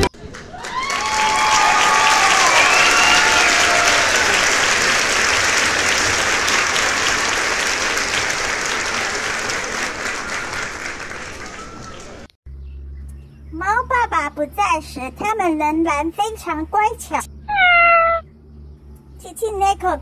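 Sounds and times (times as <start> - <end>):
crowd applause: 0.2 - 12.3.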